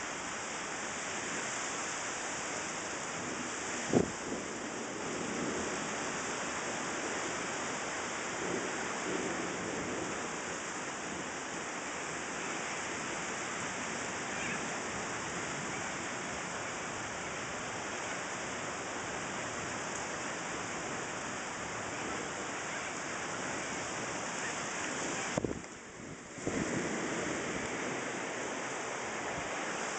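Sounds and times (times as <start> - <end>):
heavy rain hiss: 0.0 - 29.9.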